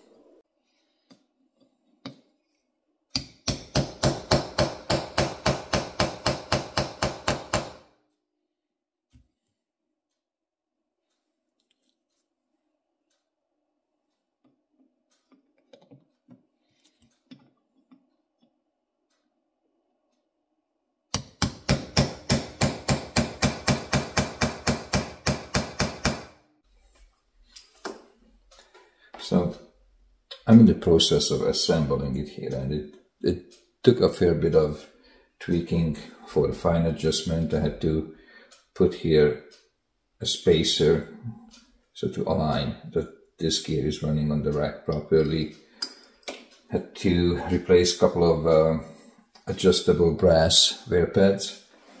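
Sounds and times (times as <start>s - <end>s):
hammer tapping metal punch: 3.1s - 7.9s, 21.1s - 26.4s.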